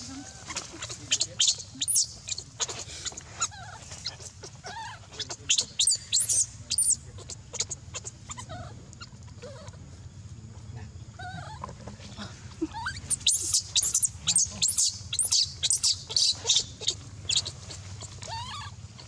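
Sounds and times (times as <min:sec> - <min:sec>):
baby monkey crying: 0:00.0 - 0:09.8, 0:12.5 - 0:19.0.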